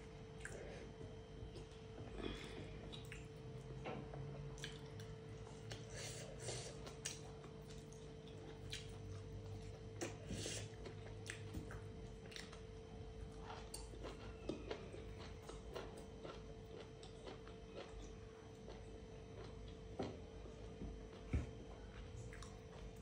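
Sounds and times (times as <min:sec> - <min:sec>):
faint steady hum: 0:00.0 - 0:23.0
chewing: 0:01.5 - 0:23.0.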